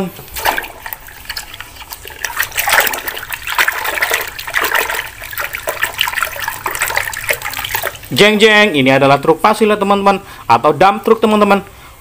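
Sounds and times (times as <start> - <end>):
hand scrubbing toy underwater: 0.0 - 8.4
water sloshing in a bucket: 0.0 - 8.8.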